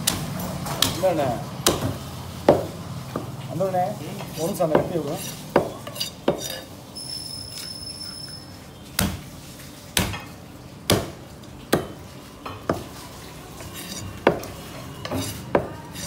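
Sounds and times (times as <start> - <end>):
knife chopping fish on wood: 1.6 - 3.3, 4.7 - 6.6, 10.0 - 10.2, 10.9 - 12.0, 12.7 - 12.9, 13.7 - 16.0.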